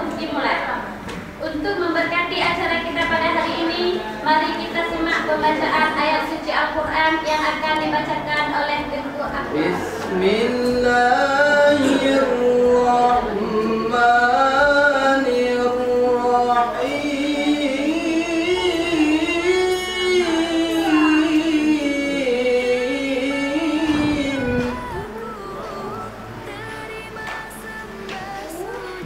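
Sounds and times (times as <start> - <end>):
man chanting melodically: 9.6 - 26.1.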